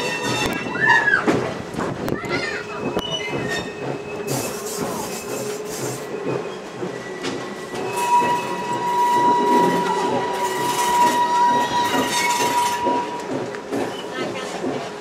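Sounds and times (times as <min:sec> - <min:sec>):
high-pitched wheel squeal: 0:00.0 - 0:01.3, 0:03.0 - 0:05.5, 0:07.0 - 0:13.2
train wheels clattering on rails: 0:00.0 - 0:15.0.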